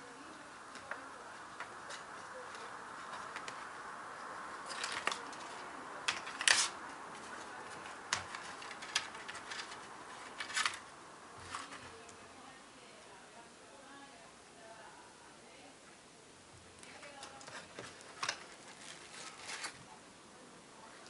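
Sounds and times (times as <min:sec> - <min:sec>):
faint steady hiss: 0:00.0 - 0:21.0.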